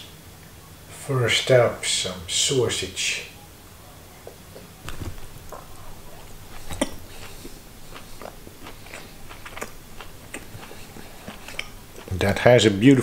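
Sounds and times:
mouth clicks and smacks: 4.9s - 12.1s
person chewing food: 4.9s - 12.4s.

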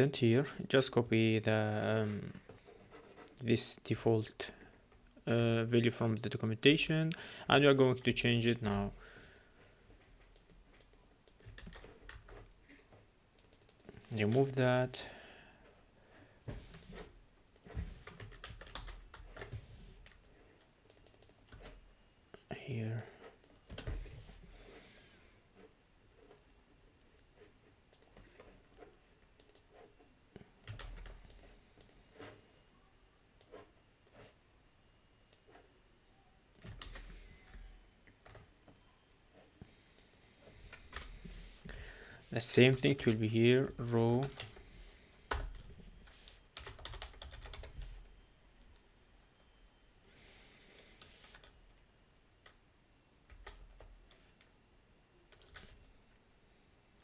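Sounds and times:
keyboard typing: 9.2s - 12.5s, 13.4s - 14.6s, 16.7s - 20.2s, 20.8s - 21.8s, 27.9s - 28.5s, 29.4s - 29.8s, 30.6s - 32.0s, 36.5s - 38.5s, 39.9s - 41.4s, 45.3s - 48.1s, 51.0s - 51.6s, 53.3s - 54.5s, 55.3s - 55.8s
mouse clicks: 20.9s - 21.4s.

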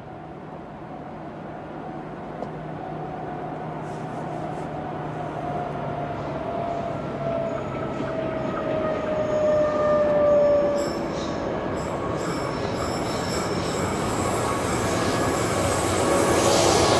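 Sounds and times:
diesel locomotive engine drone: 0.0s - 16.9s
high whine sliding lower: 8.6s - 16.9s.

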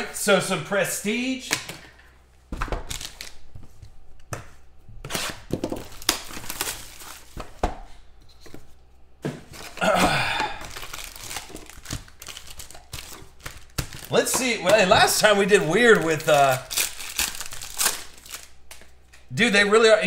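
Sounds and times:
plastic wrap tearing and crinkling: 2.8s - 3.5s, 5.1s - 7.4s, 10.6s - 19.0s.

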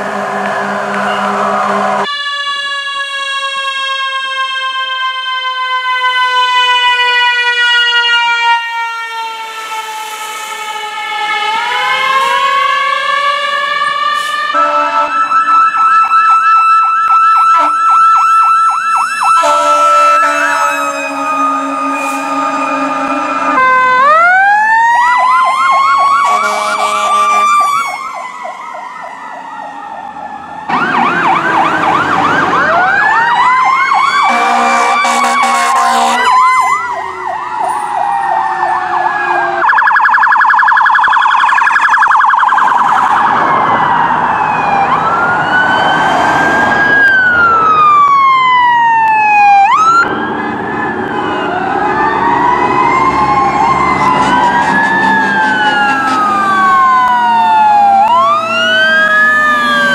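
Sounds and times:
wailing siren: 0.0s - 59.9s
electronic yelping siren: 0.4s - 59.9s
air horn blasts: 14.2s - 15.7s, 17.5s - 17.8s, 19.4s - 23.7s, 26.2s - 28.1s, 34.3s - 36.8s.

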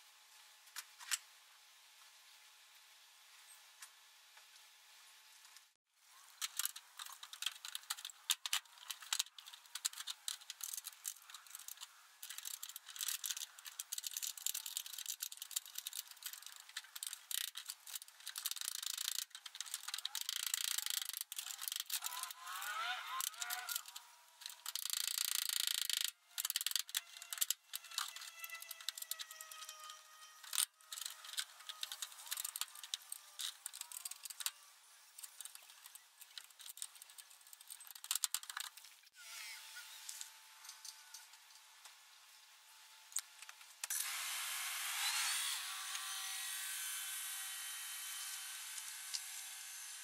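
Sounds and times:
short squeaky scrape: 26.8s - 32.4s, 39.2s - 40.1s.

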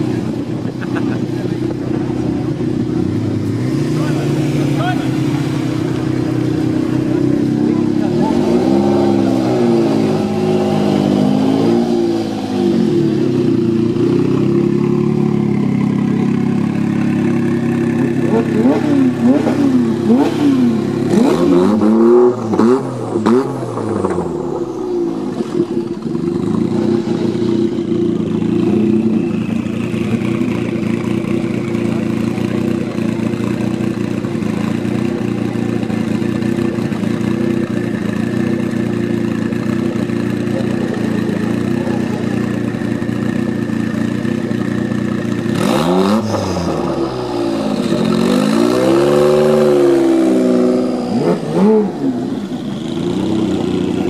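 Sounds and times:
car engine idling: 0.0s - 54.0s
car engine revving: 0.0s - 54.0s.

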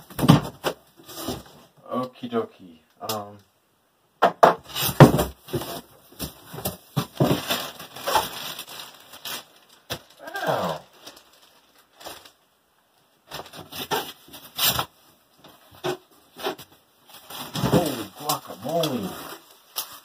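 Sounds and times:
plastic wrapping crinkling: 4.7s - 12.6s, 13.2s - 20.0s.

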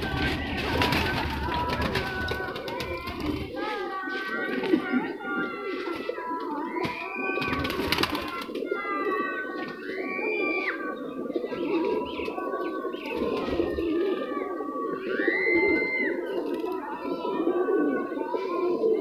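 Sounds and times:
pigeons cooing: 0.0s - 19.0s
arching whistled notes: 8.6s - 16.4s.

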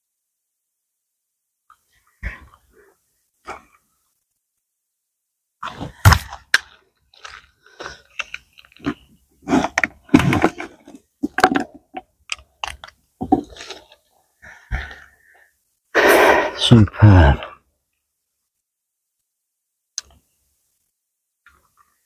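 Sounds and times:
handling noises at a bucket: 9.6s - 12.0s.

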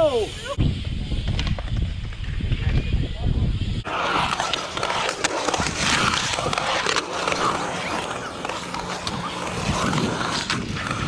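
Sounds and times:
skateboard wheels rolling on concrete: 0.0s - 11.0s
skateboard clicks and clacks: 3.9s - 11.0s.

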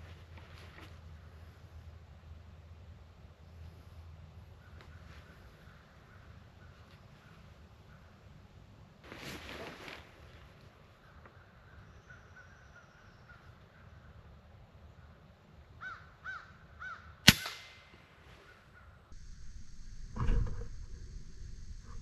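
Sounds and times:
bird calling: 11.0s - 14.2s
air rifle shot: 17.3s - 18.2s.

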